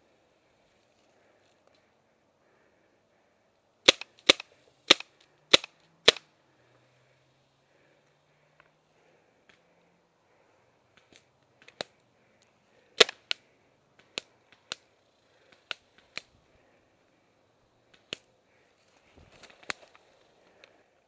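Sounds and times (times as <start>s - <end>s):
paintball gun shots: 3.8s - 6.3s, 13.0s - 13.4s.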